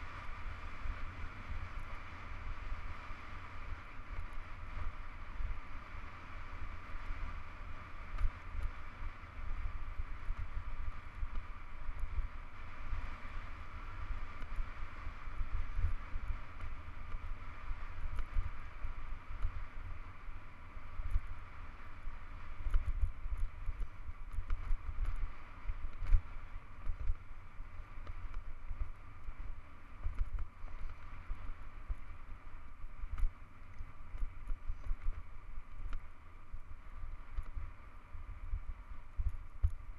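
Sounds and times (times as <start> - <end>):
wind buffeting microphone: 8.0 - 39.9.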